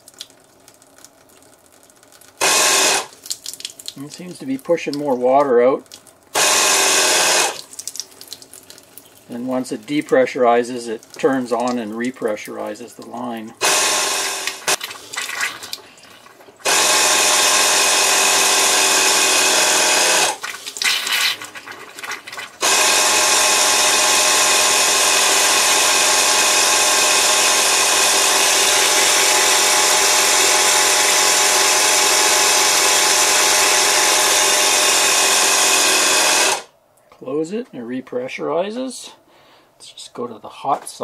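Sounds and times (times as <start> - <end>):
faucet spitting water and air: 0.0 - 36.7
air compressor whining: 2.4 - 3.1, 6.4 - 7.6, 13.6 - 14.8, 16.6 - 20.4, 22.6 - 36.7.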